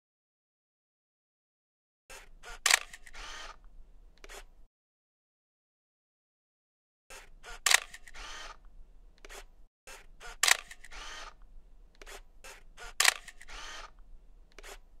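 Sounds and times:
camera shutter clicking: 2.1 - 3.6, 4.2 - 4.5, 7.1 - 11.4, 12.0 - 14.9
camera short whir: 2.1 - 4.6, 7.1 - 15.0.

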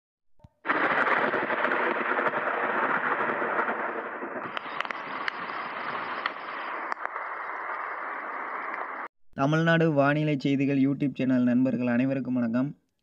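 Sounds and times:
rain: 0.6 - 9.1
thunder cracks: 0.6 - 9.1
thunder rumbling: 0.6 - 9.1.

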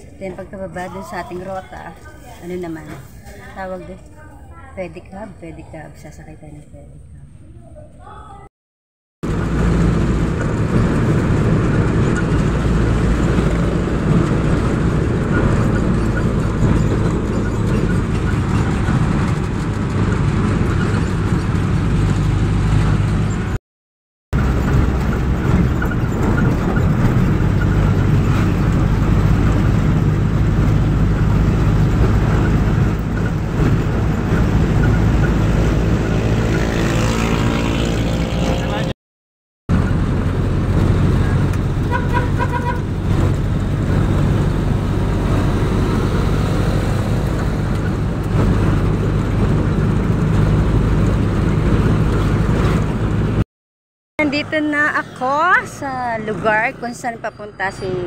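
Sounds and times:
road noise: 0.0 - 8.5, 9.2 - 23.6, 24.3 - 39.0, 39.7 - 53.5, 54.2 - 58.0
vehicle engine running: 9.2 - 23.6, 24.4 - 38.9, 39.7 - 53.4.

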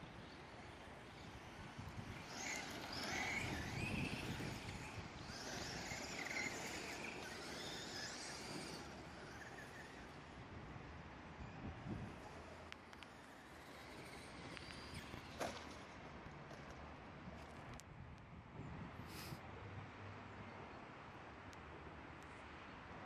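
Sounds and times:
rc truck motors whining: 0.0 - 16.8
tyres on loose dirt: 0.2 - 10.4, 12.0 - 17.8.

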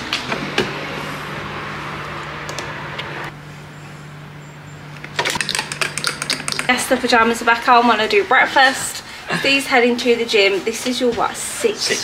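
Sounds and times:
low mechanical hum: 0.0 - 9.4.

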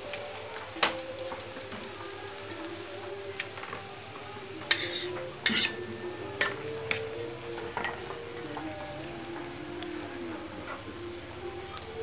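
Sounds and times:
light sizzle: 0.0 - 12.0
spatula scraping frying pan: 4.6 - 8.6.

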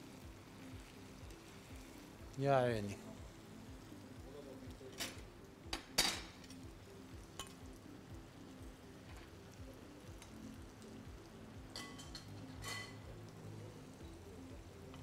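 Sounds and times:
faint pan sizzle: 0.0 - 15.0
metal utensils clinking: 11.7 - 13.0.

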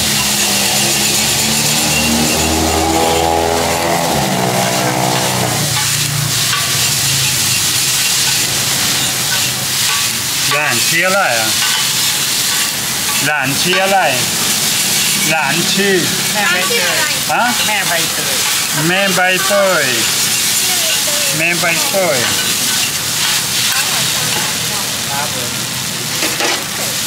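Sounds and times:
passing vehicle engine: 0.0 - 10.5, 11.2 - 21.1
food sizzling in a wok: 0.0 - 27.0
person speaking: 10.4 - 11.6, 15.2 - 22.6.

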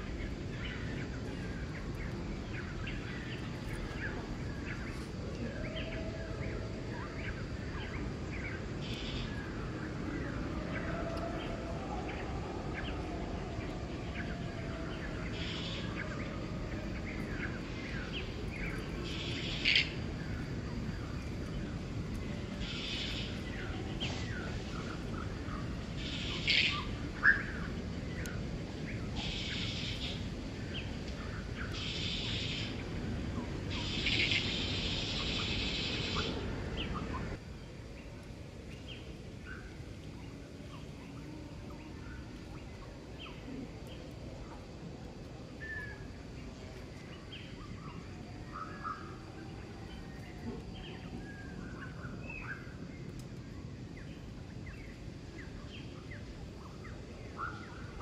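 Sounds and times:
birds chirping: 0.0 - 44.8
high hissy buzz: 15.3 - 37.4.

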